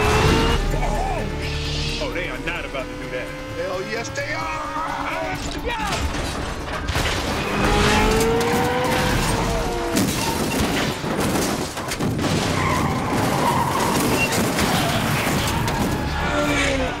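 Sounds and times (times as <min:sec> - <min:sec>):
tires squealing: 0:00.0 - 0:06.2, 0:07.2 - 0:11.1, 0:12.3 - 0:17.0
car engine noise: 0:00.0 - 0:17.0
heavy car crashes: 0:05.4 - 0:17.0.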